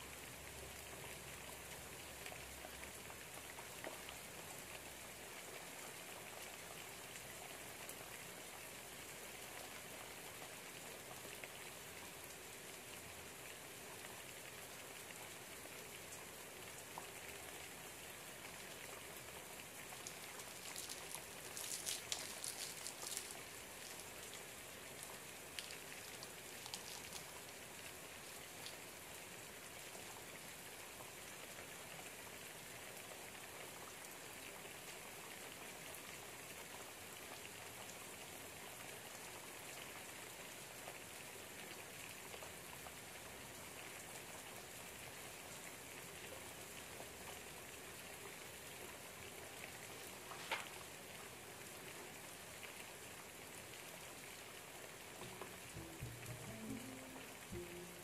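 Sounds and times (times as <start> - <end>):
rain pattering: 0.0 - 58.0
crisp rustling and crinkling: 20.0 - 27.7, 50.2 - 50.8.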